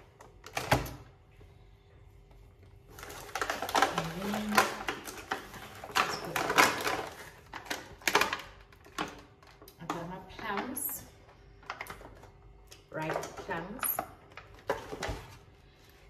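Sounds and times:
plastic packaging crinkling: 2.7s - 9.8s.

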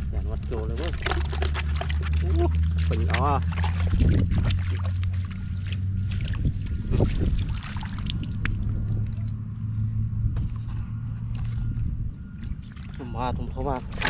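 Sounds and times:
low engine hum: 0.0s - 14.0s
water splashing and dripping: 0.2s - 9.4s, 12.4s - 14.0s.

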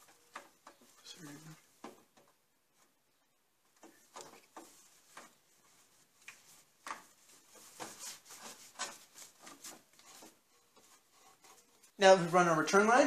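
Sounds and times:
rubber hose rubbing on metal: 3.8s - 12.0s.

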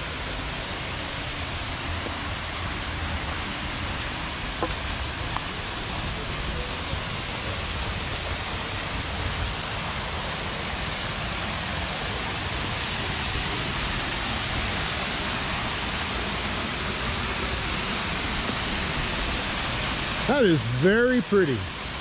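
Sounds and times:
waterfall rushing: 0.0s - 22.0s.

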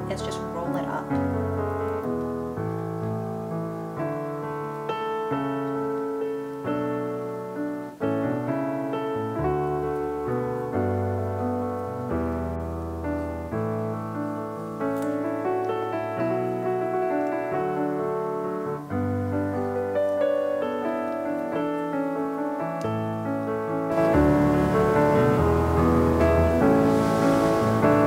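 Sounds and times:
piano chords: 0.0s - 28.0s.

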